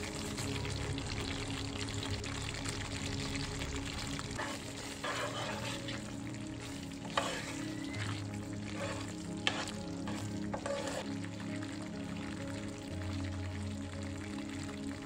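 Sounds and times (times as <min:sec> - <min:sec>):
sizzling in a pan: 0:00.0 - 0:15.0
soft background music: 0:00.0 - 0:15.0
spatula stirring thick gravy: 0:04.4 - 0:11.1.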